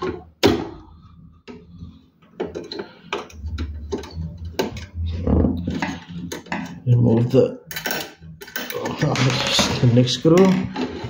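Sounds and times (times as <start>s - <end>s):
low handling rumble: 3.4s - 6.2s.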